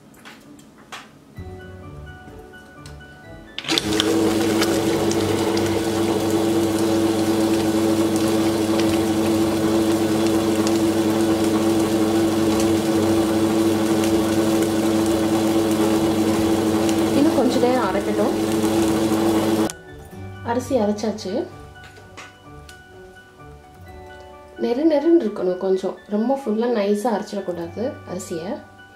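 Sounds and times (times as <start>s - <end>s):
wet grinder humming: 3.6s - 19.7s.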